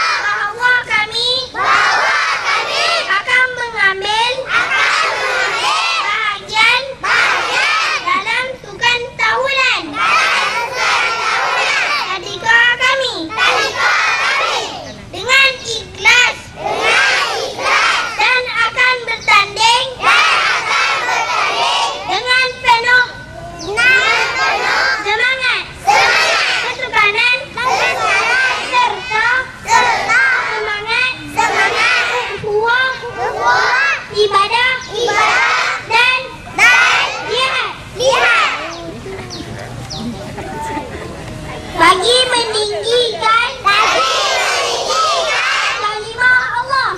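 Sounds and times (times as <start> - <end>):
children shouting and chanting: 0.0 - 39.4, 41.7 - 46.9
boy speaking into a microphone: 0.1 - 1.6, 3.0 - 4.5, 5.9 - 7.0, 8.0 - 10.0, 12.0 - 13.4, 14.7 - 16.6, 18.1 - 20.0, 22.1 - 24.4, 32.2 - 33.4, 37.2 - 43.8, 45.8 - 46.9.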